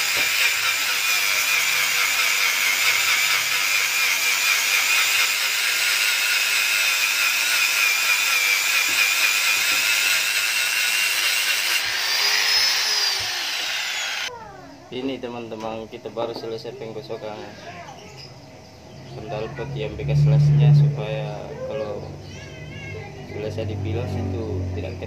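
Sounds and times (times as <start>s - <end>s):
angle grinder grinding metal: 0.0s - 14.3s
grinder disc whining spinning free: 0.0s - 14.3s.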